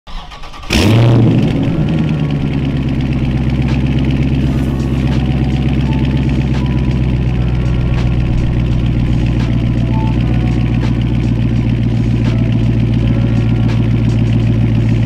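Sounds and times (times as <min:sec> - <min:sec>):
car engine starting and idling: 0:00.1 - 0:15.0.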